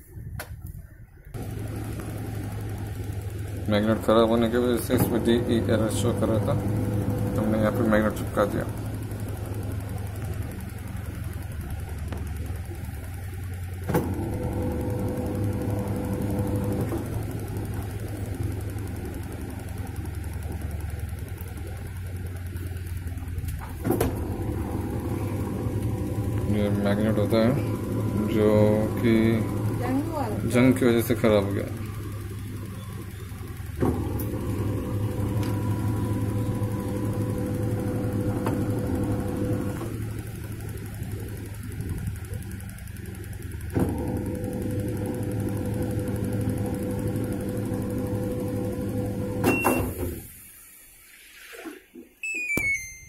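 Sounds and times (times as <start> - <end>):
steady whine: 0.0 - 50.4
washing machine motor hum: 0.0 - 53.0
washing machine click: 1.8 - 8.9
washing machine clunk: 4.8 - 6.7, 23.6 - 26.4, 49.3 - 50.3.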